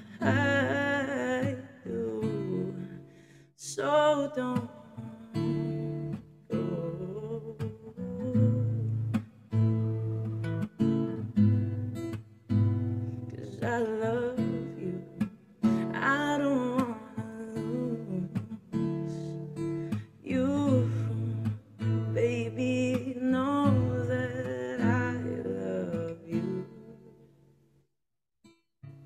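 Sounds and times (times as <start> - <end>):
person singing: 0.0 - 3.0, 3.6 - 5.7, 6.5 - 9.1, 13.2 - 19.6, 20.2 - 27.1
acoustic guitar strumming: 4.6 - 27.4.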